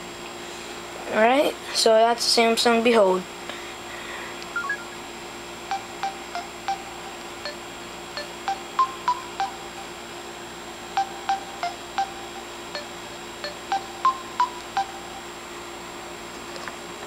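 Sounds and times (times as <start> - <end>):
dialpad key tones: 4.6 - 5.0, 5.7 - 10.0, 11.0 - 15.3.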